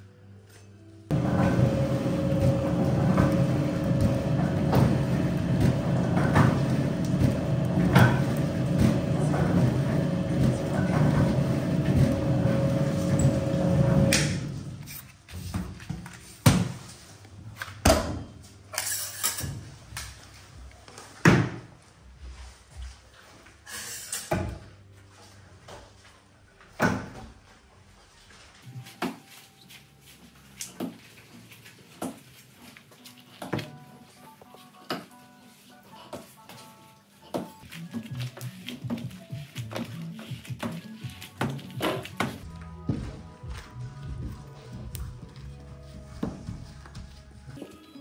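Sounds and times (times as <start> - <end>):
machine motor hum: 1.1 - 14.8.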